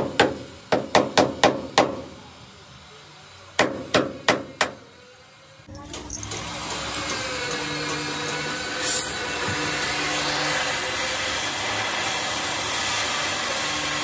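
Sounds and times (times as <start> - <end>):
motor-driven tool running: 5.7 - 14.0.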